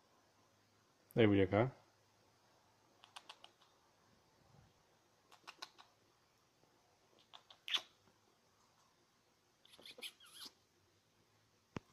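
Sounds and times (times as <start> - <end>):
bird clicks and squeaks: 3.0 - 3.7, 5.3 - 5.9, 7.2 - 7.9.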